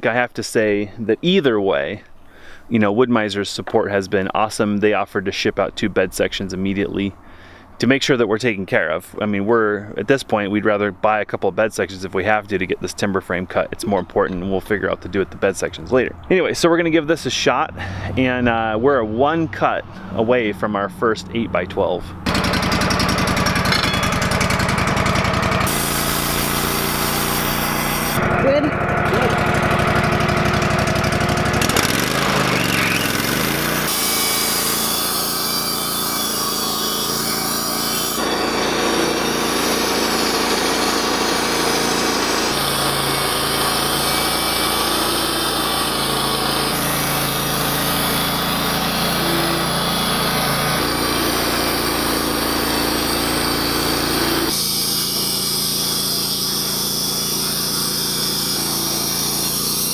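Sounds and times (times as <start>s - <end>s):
band sawmill sawing timber: 22.2s - 59.9s.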